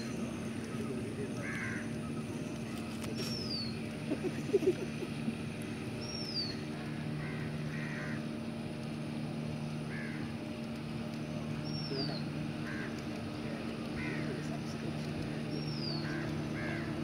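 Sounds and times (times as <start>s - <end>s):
steady low hum: 0.0s - 17.0s
crows cawing: 1.3s - 2.1s, 6.8s - 8.4s, 9.8s - 10.4s, 12.5s - 14.8s, 15.6s - 17.0s.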